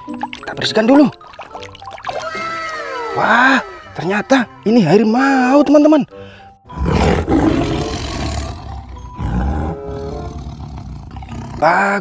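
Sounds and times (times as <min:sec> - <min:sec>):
tiger roaring: 0:06.7 - 0:12.0.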